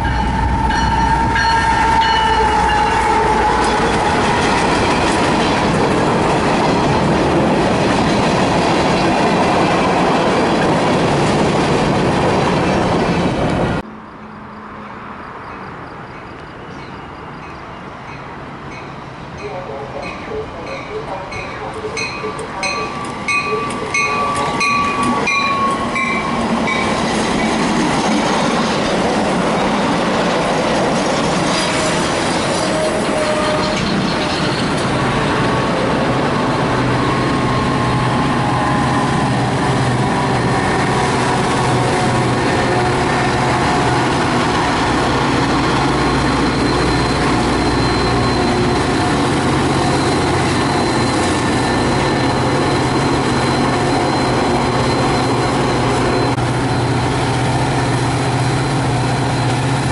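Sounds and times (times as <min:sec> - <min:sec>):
train wheels rumbling on rails: 0:00.0 - 0:13.8, 0:15.4 - 0:59.9.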